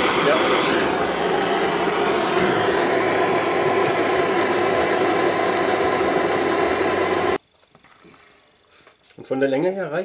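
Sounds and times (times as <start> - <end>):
gas torch hissing: 0.0 - 7.4.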